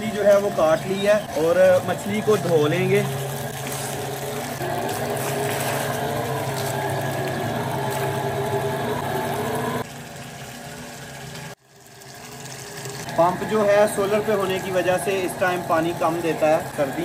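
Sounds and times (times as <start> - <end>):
water splashing in a bowl: 0.0 - 8.6
water gushing from a pipe: 0.0 - 17.0.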